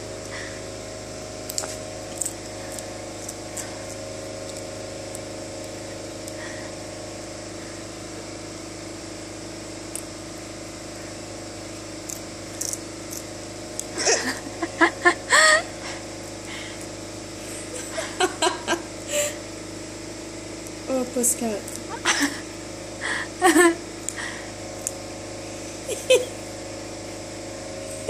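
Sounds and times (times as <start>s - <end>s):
steady mechanical hum: 0.0s - 28.0s
kitten crunching popcorn: 1.4s - 6.4s, 11.9s - 14.5s.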